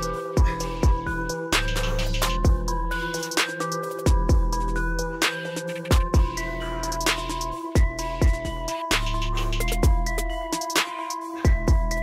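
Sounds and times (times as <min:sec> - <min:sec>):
electronic music with a beat: 0:00.0 - 0:12.0.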